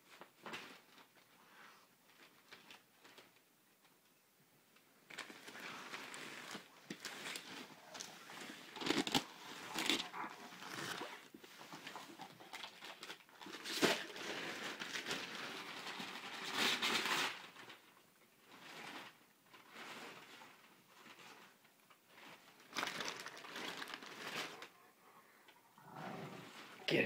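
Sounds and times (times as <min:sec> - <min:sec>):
wrapping paper crinkling and tearing: 0:02.1 - 0:03.4, 0:05.1 - 0:24.9.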